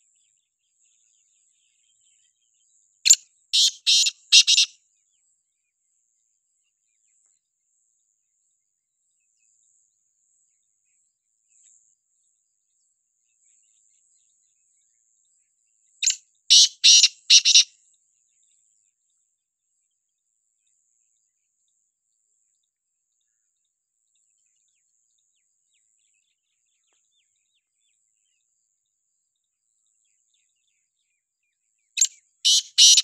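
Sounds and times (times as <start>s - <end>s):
bird harsh grating call: 3.6s - 4.7s, 16.5s - 17.6s, 32.5s - 33.0s.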